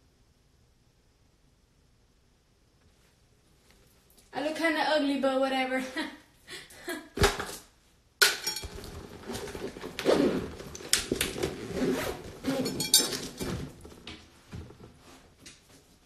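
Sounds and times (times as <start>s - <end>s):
small hard objects clinking: 8.2s - 8.9s, 12.6s - 13.6s.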